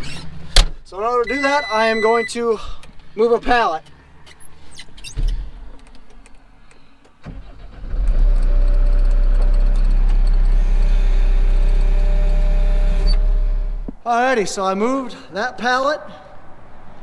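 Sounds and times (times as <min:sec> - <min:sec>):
loader engine running: 0:07.8 - 0:13.8.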